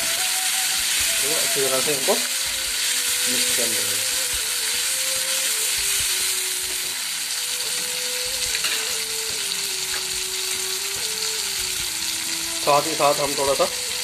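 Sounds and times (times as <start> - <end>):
vegetables sizzling in hot oil: 0.0 - 14.0.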